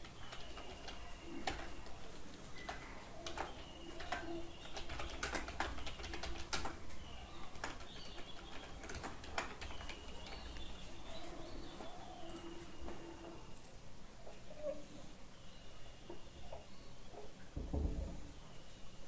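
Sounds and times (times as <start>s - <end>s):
faint tonal calls: 6.9s - 19.0s.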